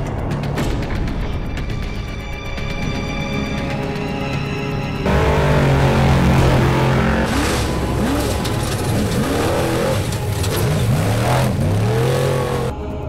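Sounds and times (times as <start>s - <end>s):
truck engine revving hard: 5.1s - 12.7s.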